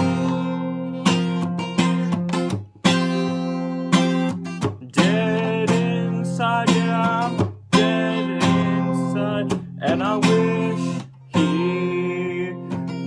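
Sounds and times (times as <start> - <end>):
acoustic guitar strummed: 0.0 - 13.0
young man singing: 4.7 - 13.0.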